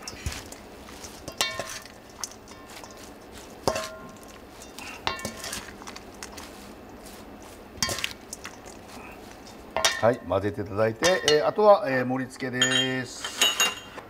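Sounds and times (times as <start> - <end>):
salad leaves rustling: 0.0 - 11.0
metal spoon clinking on bowl: 1.2 - 5.6, 9.4 - 10.2, 12.6 - 13.9.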